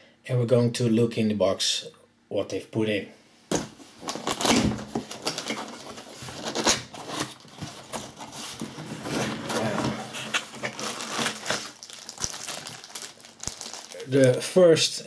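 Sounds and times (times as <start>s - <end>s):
cardboard scraping and rustling: 4.0s - 11.7s
plastic bag crinkling: 4.0s - 14.5s.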